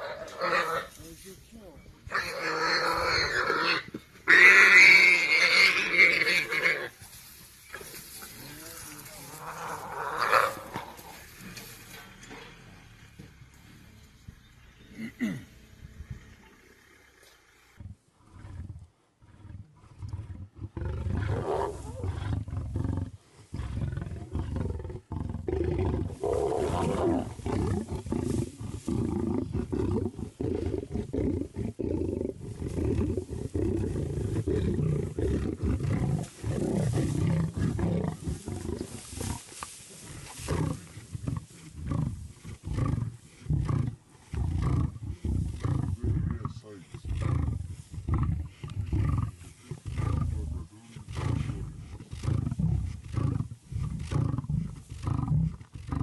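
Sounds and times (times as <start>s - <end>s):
lions growling: 0.0s - 1.0s, 2.0s - 13.8s, 14.8s - 56.0s.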